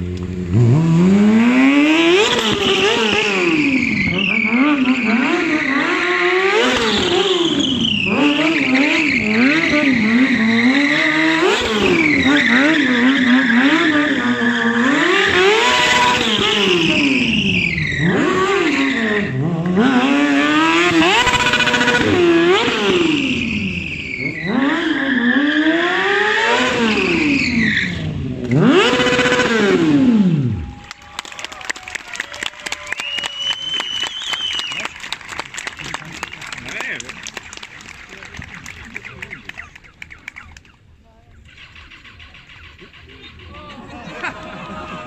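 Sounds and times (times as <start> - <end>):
motorcycle engine revving: 0.0 - 30.8, 41.3 - 45.0
tyre squeal: 2.4 - 19.4, 22.0 - 26.0, 26.6 - 28.2.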